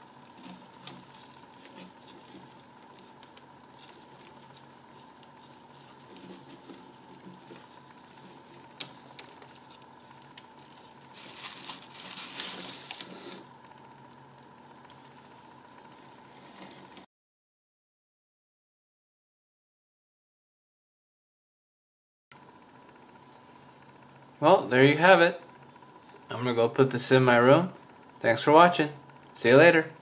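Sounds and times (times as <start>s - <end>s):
soil crumbling and rustling: 0.0s - 13.5s
faint steady hum: 0.0s - 17.1s, 22.4s - 30.0s.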